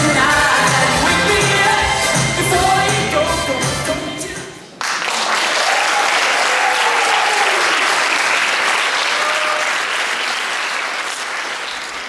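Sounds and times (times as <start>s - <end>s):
audience applauding: 4.8s - 12.0s
short cheers: 5.6s - 8.0s, 9.0s - 9.8s.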